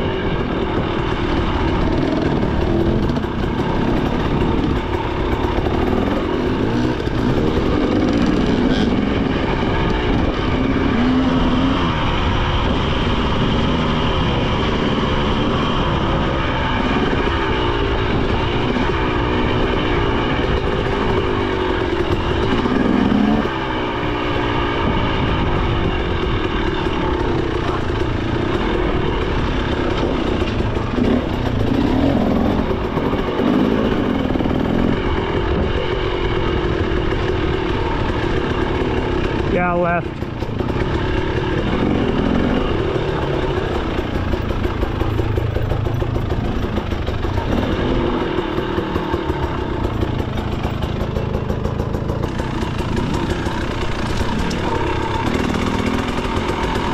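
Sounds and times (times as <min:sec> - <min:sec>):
dirt bike engine revving: 0:00.0 - 0:56.9.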